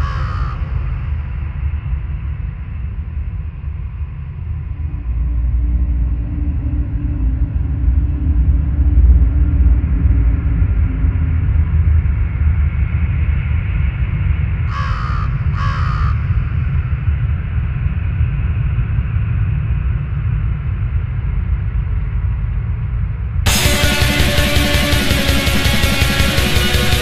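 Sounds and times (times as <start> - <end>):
crow cawing: 0.0 - 0.9, 14.7 - 16.2
steady deep rumble: 0.9 - 11.9.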